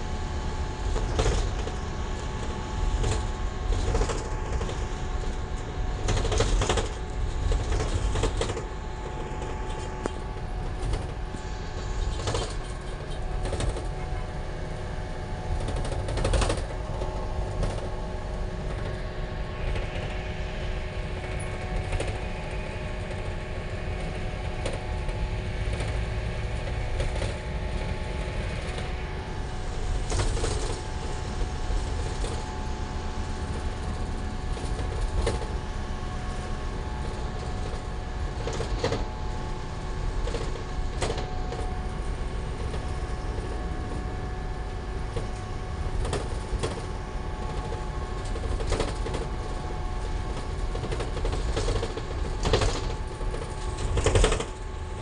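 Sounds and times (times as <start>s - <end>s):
engine and road rumble: 0.0s - 55.0s
rattles and knocks: 0.9s - 14.4s, 15.5s - 29.1s, 44.9s - 55.0s.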